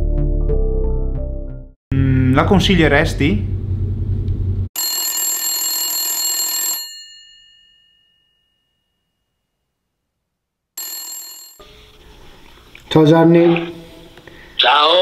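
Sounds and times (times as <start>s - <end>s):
bell-like phone ringtone: 4.8s - 9.2s, 10.8s - 11.8s.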